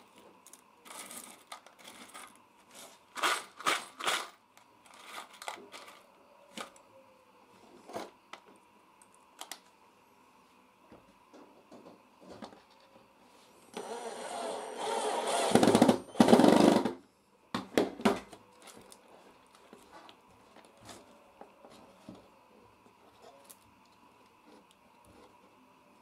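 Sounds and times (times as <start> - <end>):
cordless drill driving screws: 13.8 - 16.8.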